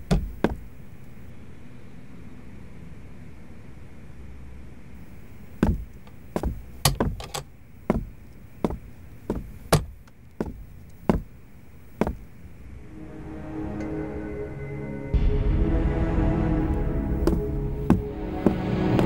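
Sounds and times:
low room hum: 0.0s - 19.0s
footsteps on hard floor: 5.6s - 7.2s, 7.9s - 11.3s, 12.0s - 12.2s, 17.2s - 19.0s.

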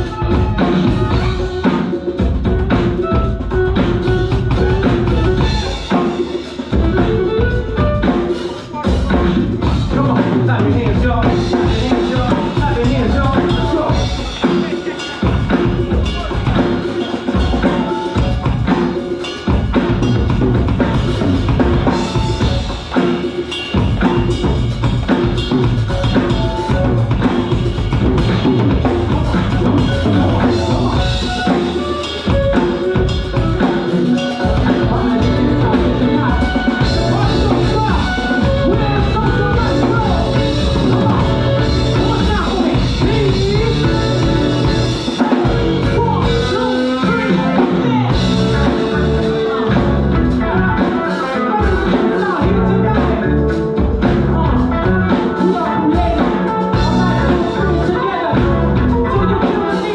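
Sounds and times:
backing track with drum beat: 0.0s - 59.9s
woman singing: 28.8s - 59.9s.

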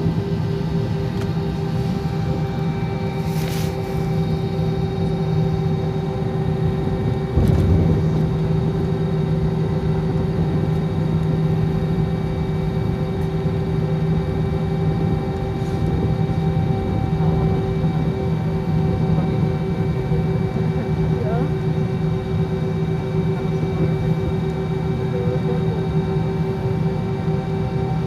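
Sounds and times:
jet engine cabin drone: 0.0s - 28.0s
low thump: 7.4s - 8.4s.

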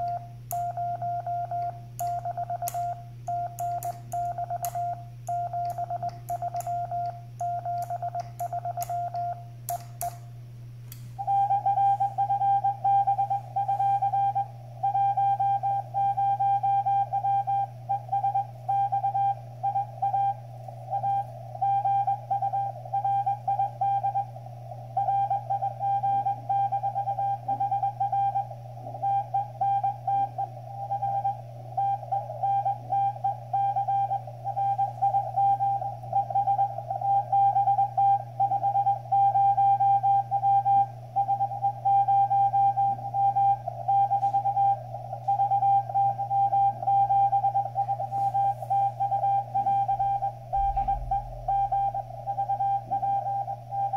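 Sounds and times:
steady low hum: 0.0s - 53.9s
morse sidetone with clicks: 3.6s - 10.2s
morse tone from radio speaker: 42.9s - 53.9s.

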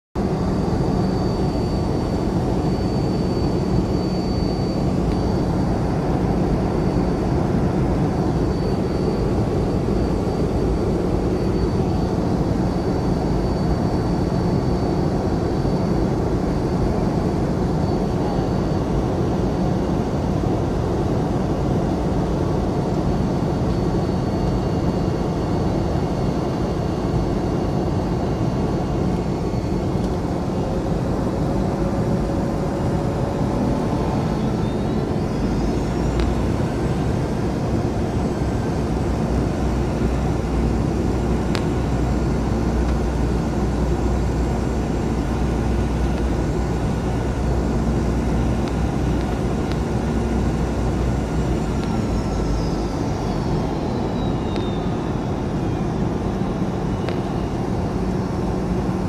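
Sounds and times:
faint high whine: 0.2s - 59.0s
low hum: 27.3s - 59.0s.

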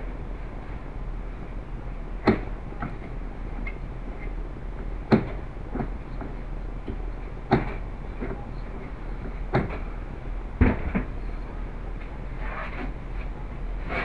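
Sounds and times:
steady low hum: 0.0s - 14.0s
clunks and knocks on workbench: 10.6s - 11.1s.

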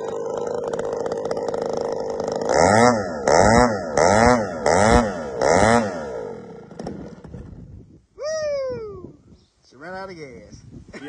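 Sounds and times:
model plane engine revving: 0.0s - 7.7s.

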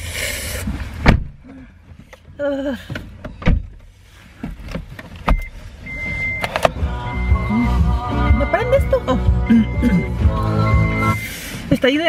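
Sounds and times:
short high beeps: 5.4s - 11.4s.

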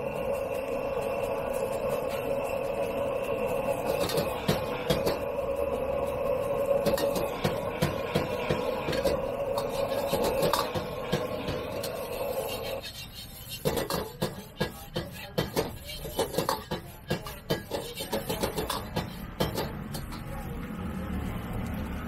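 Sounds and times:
metal ladle scraping a wok: 0.0s - 20.3s
gas burner roar: 0.0s - 22.0s.

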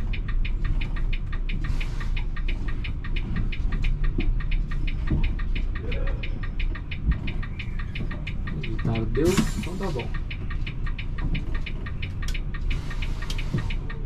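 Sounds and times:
diesel engine running: 0.0s - 14.0s
rapid ticking: 0.0s - 14.0s.

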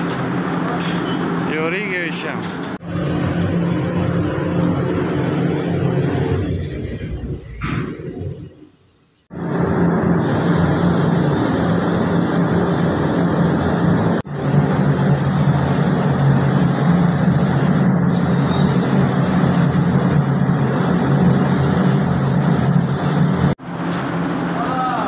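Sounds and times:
machine humming: 2.6s - 8.5s.

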